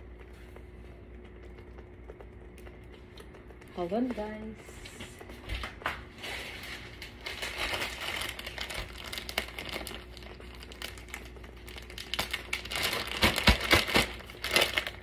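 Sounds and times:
packaging crinkling: 5.7s - 15.0s.

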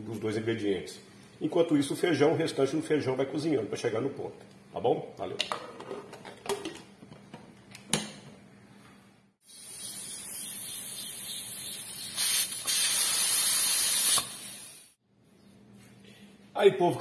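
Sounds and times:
pressure cooker steam hissing: 9.4s - 15.0s.

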